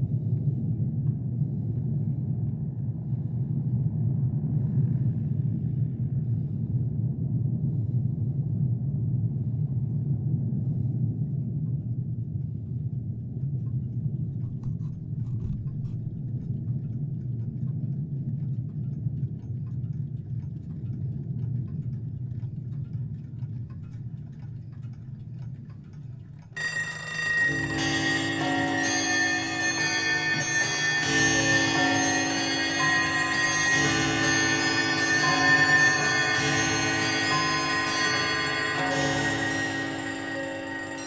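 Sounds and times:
low rumble: 0.0 - 41.0
clock ticking: 13.7 - 41.0
alarm bells ringing: 26.6 - 41.0.

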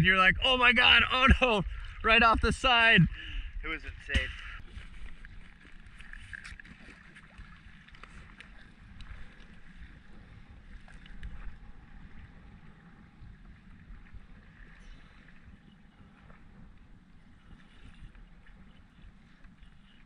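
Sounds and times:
water lapping: 0.0 - 20.0
wind rumble: 7.4 - 19.4.

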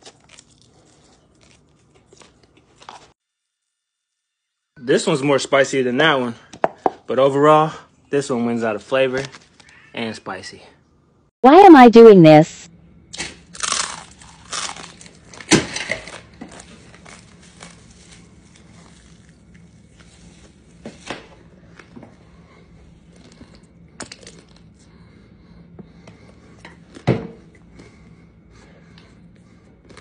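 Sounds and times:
crunching dry noodles: 0.0 - 3.2, 13.2 - 20.8.

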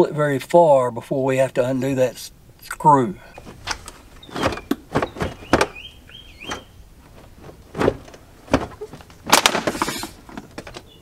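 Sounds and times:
plastic knocks and clicks: 3.4 - 5.8, 6.4 - 10.9
plastic housing cracking: 7.8 - 10.9.

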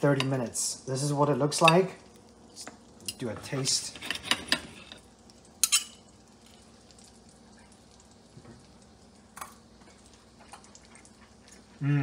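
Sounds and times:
cutlery clinking on plate: 5.6 - 6.0.

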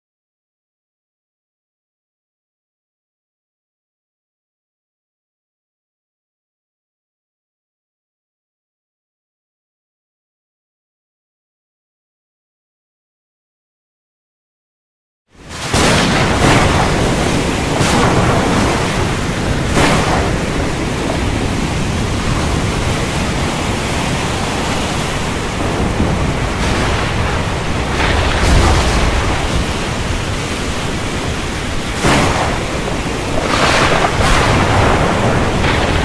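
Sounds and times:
wind and rain rushing: 15.3 - 36.0
thunder rumble: 15.4 - 36.0.

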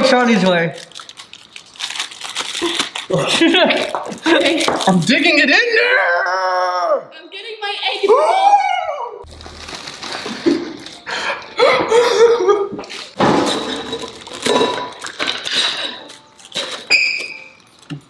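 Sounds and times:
people laughing and shrieking: 8.0 - 9.2
bowls and utensils clinking: 13.4 - 17.6.

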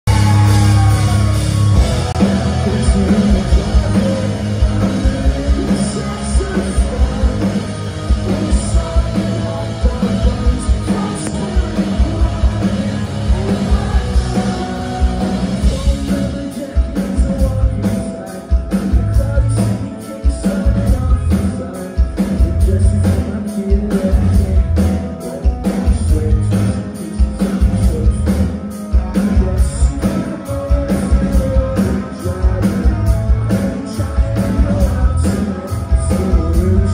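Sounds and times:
bass guitar: 0.0 - 36.9
electric guitars: 0.1 - 36.9
person singing: 0.1 - 36.9
drum kit hits: 10.8 - 16.4.

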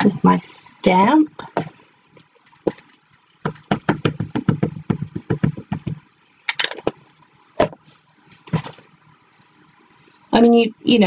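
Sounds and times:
ink pad tapping on rubber stamp: 3.4 - 6.0.

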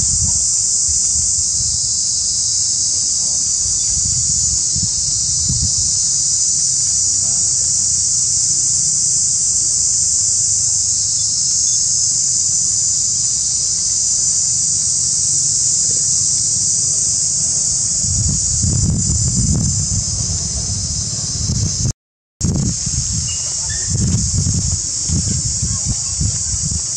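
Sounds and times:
high-pitched insect chorus: 0.0 - 26.9.

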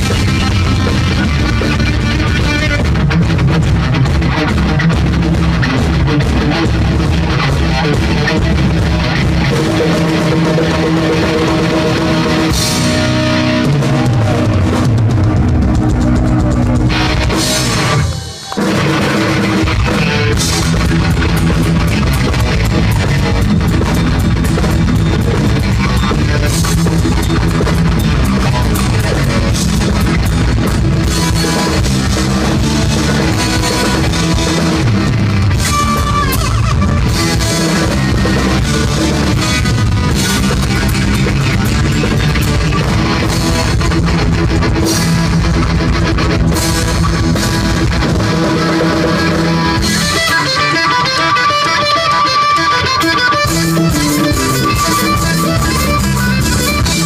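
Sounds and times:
bass guitar: 0.0 - 57.0
distorted electric guitar: 0.0 - 57.0
drum kit: 0.0 - 57.0.

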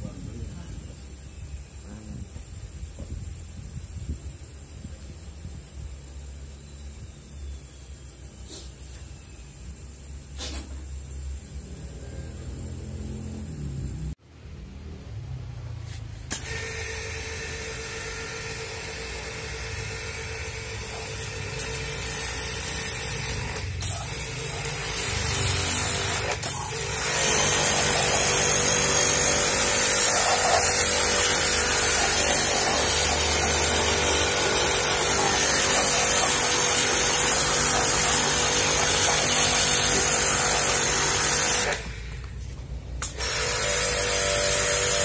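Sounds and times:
pressure washer jet hissing: 20.3 - 42.2.

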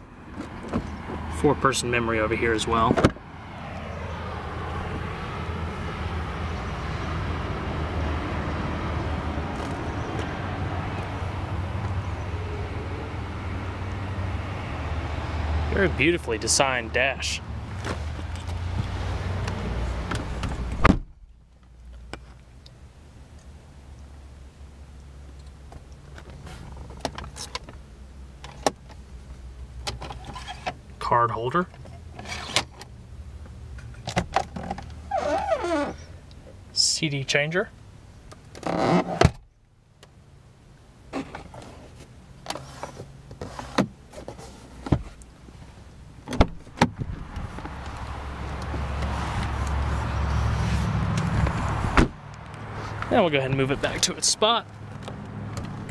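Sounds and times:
outside noise: 0.0 - 55.9
car door thud: 20.0 - 21.2, 46.3 - 47.2, 51.4 - 52.2.

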